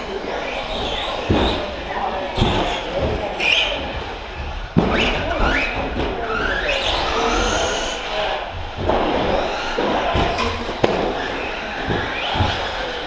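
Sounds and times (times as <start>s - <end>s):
electric motors whining: 0.0s - 13.0s
sharp knocks: 8.6s - 13.0s.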